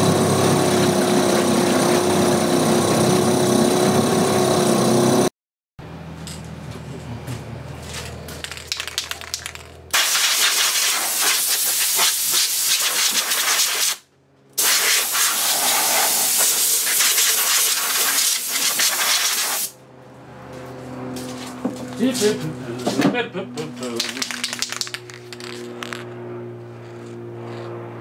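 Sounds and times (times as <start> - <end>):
aerosol spray can hissing: 10.0 - 14.0, 14.6 - 19.7.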